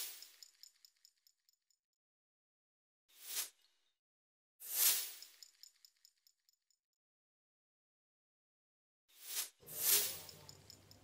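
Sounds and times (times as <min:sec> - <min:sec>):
metallic tinkles: 0:09.6 - 0:11.0.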